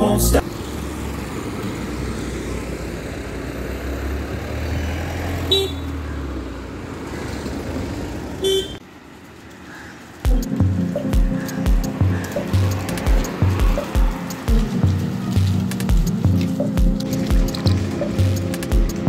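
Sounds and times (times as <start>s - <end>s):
road traffic rumble: 0.0s - 19.0s
car horn toots: 5.5s - 5.9s, 8.4s - 8.8s.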